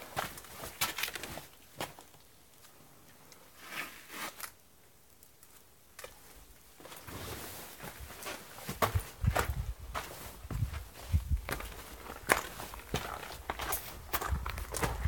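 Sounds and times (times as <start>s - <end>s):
footsteps on gravel: 7.9s - 15.0s.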